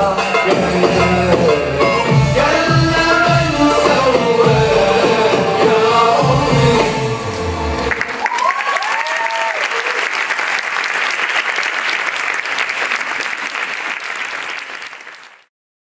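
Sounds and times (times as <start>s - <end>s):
audience applause: 7.3s - 15.5s.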